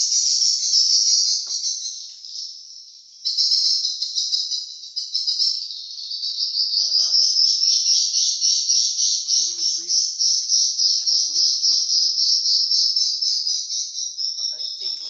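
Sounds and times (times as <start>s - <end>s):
swiftlets twittering: 9.2s - 10.1s, 14.4s - 15.0s.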